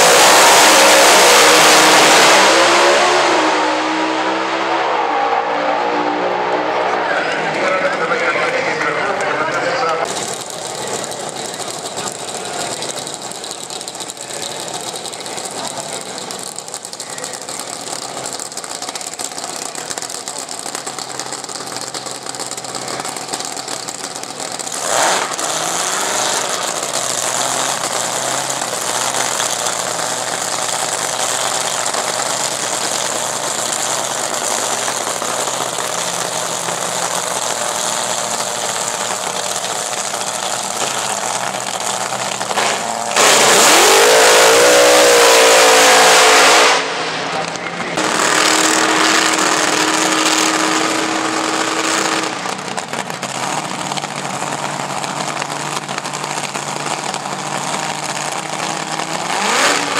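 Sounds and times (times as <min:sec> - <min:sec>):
background engine rumble: 0:02.6 - 0:45.0, 0:46.8 - 0:59.9
dragster engine firing and idling: 0:10.0 - 0:59.9.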